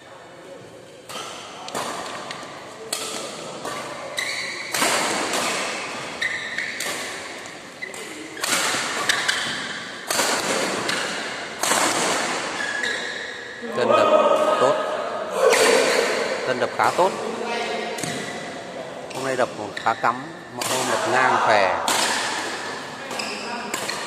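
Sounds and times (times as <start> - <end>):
rackets hitting shuttlecock: 1.1 - 13.2, 18.0 - 18.5, 21.8 - 24.0.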